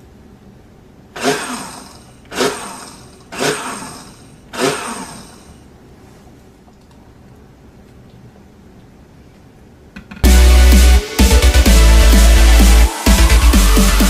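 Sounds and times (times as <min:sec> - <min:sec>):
blender pulsing: 0:01.2 - 0:05.6.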